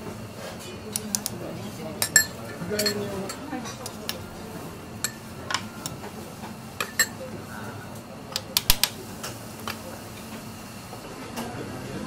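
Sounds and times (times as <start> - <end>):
metal utensils and dishes clinking: 2.0 - 4.3, 6.8 - 7.2.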